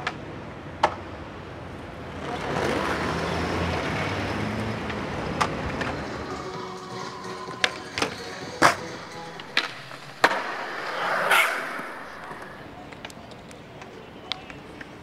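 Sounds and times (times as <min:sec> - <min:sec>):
skateboard clack on pavement: 0:00.0 - 0:01.1, 0:04.8 - 0:06.1, 0:07.6 - 0:15.0
vehicle passing: 0:02.1 - 0:12.8.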